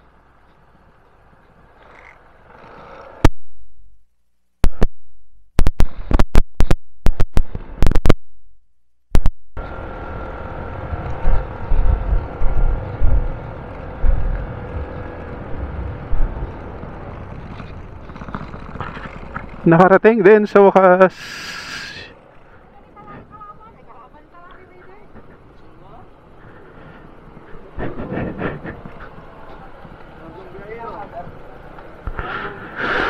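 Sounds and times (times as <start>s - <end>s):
motorcycle running: 0.0s - 3.3s, 9.6s - 21.1s, 22.1s - 33.0s
wind rumble on microphone: 9.6s - 19.7s.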